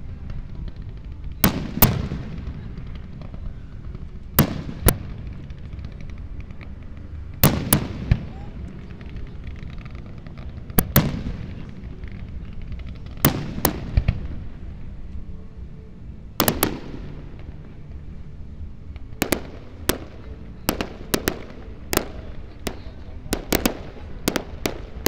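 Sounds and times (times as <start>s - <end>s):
low rumble: 0.0s - 25.0s
firework shells bursting: 19.0s - 25.0s.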